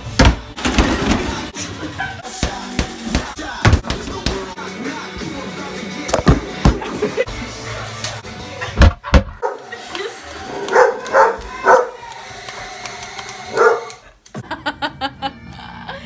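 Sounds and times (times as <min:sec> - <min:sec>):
dog barking: 0:09.4 - 0:09.7, 0:10.6 - 0:12.0, 0:13.5 - 0:14.0.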